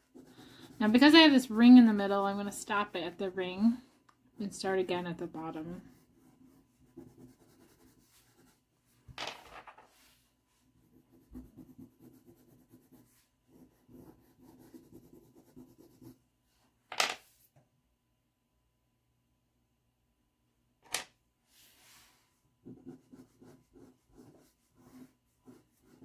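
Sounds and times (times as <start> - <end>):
pastel scratching on paper: 0.0 - 1.5, 4.5 - 8.6, 10.8 - 16.2, 22.7 - 26.0.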